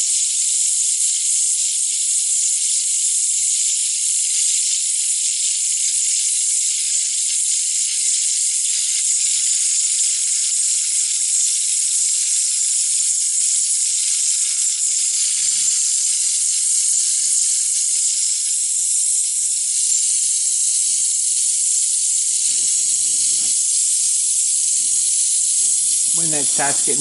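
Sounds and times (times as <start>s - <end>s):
blowtorch flame hissing: 5.8s - 27.0s.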